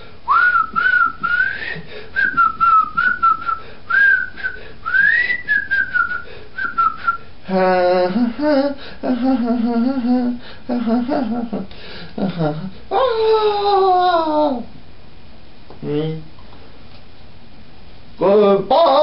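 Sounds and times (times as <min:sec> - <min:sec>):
person whistling a tune: 0:00.3 - 0:07.3
person singing: 0:07.5 - 0:14.7.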